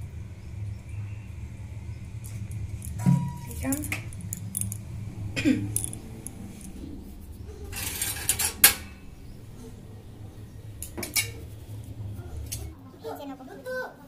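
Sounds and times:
low steady hum: 0.0s - 14.0s
metal utensils clinking in dish rack: 7.7s - 8.9s.

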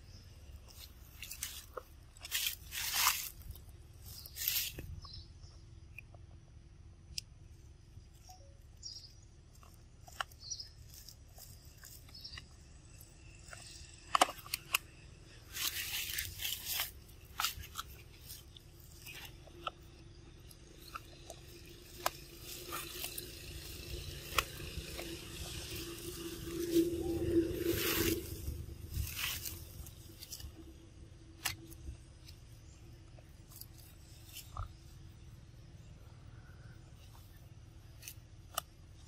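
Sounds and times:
monkeys crunching food: 9.5s - 30.8s.

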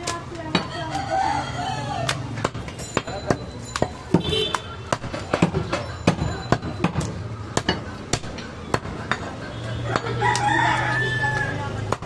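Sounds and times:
rooster crowing: 0.7s - 2.2s, 9.8s - 11.8s.

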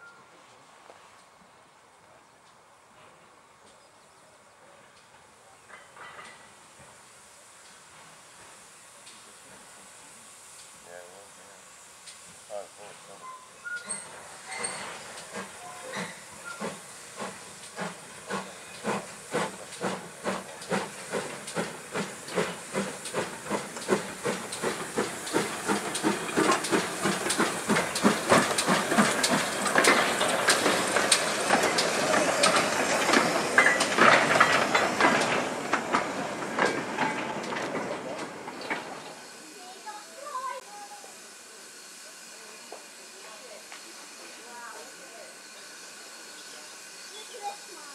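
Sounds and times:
loud hiss of steam: 4.4s - 47.9s
steam locomotive exhaust beats: 4.5s - 47.9s.

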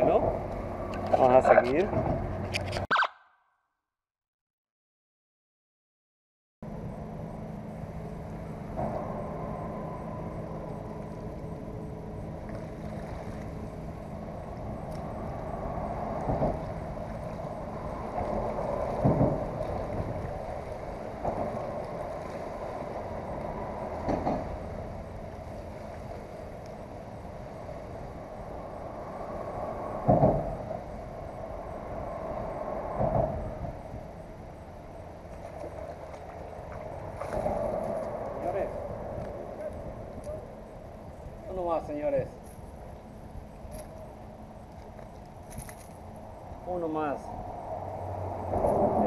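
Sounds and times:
steady traffic hum: 0.0s - 3.1s, 6.6s - 49.0s
vehicle passing loudly: 8.0s - 35.0s, 46.2s - 49.0s.

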